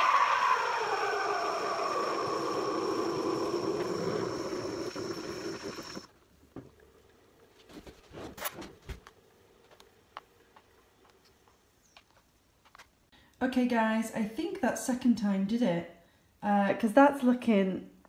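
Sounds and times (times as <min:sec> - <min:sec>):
steam wand hissing and whistling: 0:00.0 - 0:06.1.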